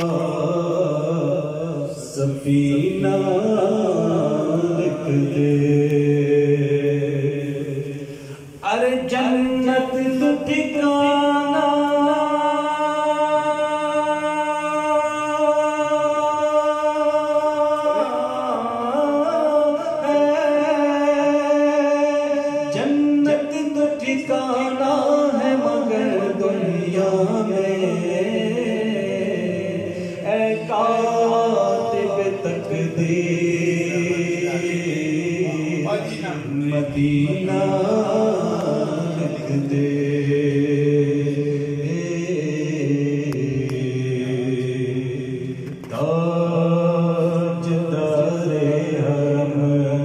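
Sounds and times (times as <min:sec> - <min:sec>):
man singing unaccompanied: 0:00.0 - 0:07.9, 0:08.5 - 0:50.0.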